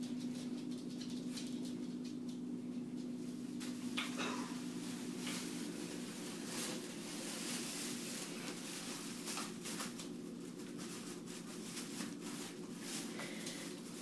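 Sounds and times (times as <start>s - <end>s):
steady low hum: 0.0s - 14.0s
plastic bags rustling: 3.2s - 14.0s.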